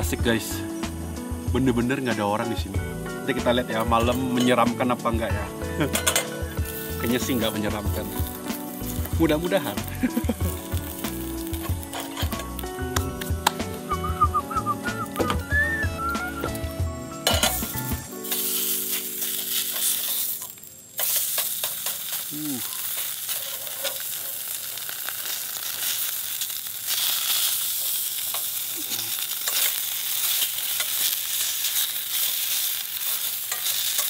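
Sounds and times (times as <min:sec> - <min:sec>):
background music: 0:00.0 - 0:20.4
fat sizzling in a frying pan: 0:00.0 - 0:34.0
utensil stirring in pan: 0:05.8 - 0:12.5, 0:17.3 - 0:34.0.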